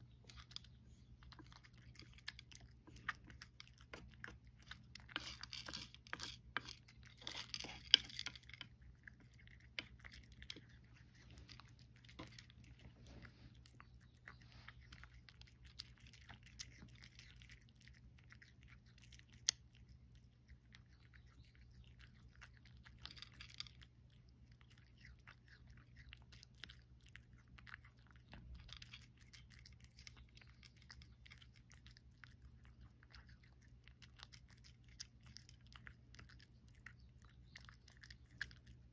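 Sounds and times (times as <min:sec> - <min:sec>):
hand stirring food rustle: 0:00.0 - 0:08.8
cat crunching and chewing: 0:00.0 - 0:38.9.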